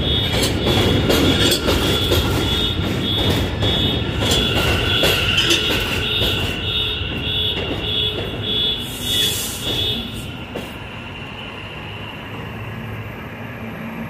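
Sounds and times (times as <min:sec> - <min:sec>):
train rumble: 0:00.0 - 0:14.0
train wheels squealing: 0:00.0 - 0:14.0.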